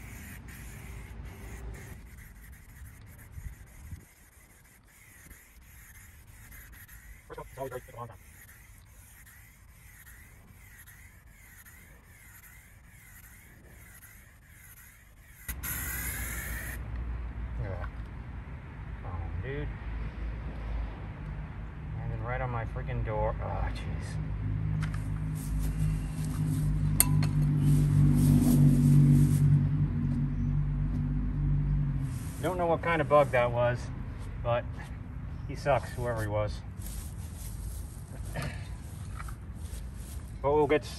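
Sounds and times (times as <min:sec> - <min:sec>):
high-pitched animal call: 0:00.0 - 0:16.8
spray paint can hissing: 0:00.0 - 0:16.8
sharp clink: 0:27.0 - 0:27.4
soft rustling hiss: 0:36.1 - 0:40.4.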